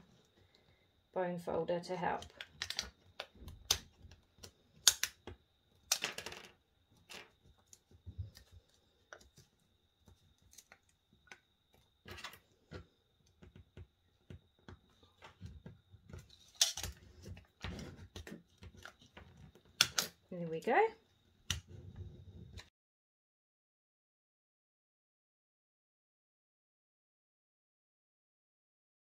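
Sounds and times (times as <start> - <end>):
aluminium sheet crinkling and clicking: 1.9 - 13.6, 14.3 - 20.3.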